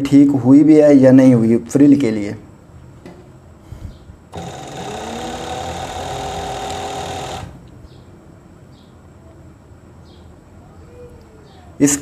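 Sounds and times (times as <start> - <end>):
overlock sewing machine running: 4.4 - 7.6.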